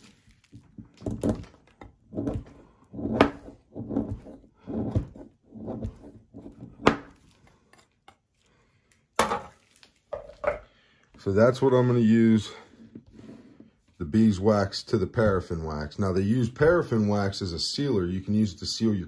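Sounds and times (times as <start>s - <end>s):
knife scraping wax: 0.0s - 8.5s.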